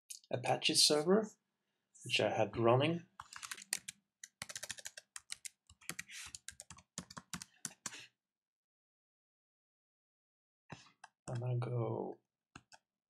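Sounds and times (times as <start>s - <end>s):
typing on computer keyboard: 3.2s - 8.0s.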